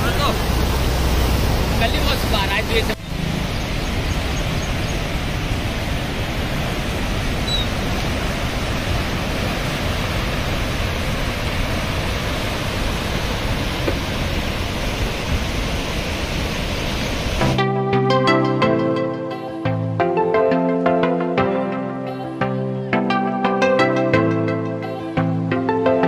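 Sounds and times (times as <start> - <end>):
river rushing through rapids: 0.0 - 17.6.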